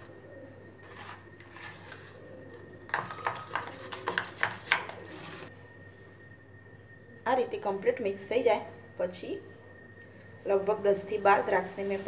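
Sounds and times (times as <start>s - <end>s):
spoon clinking and scraping a bowl: 0.8s - 5.5s.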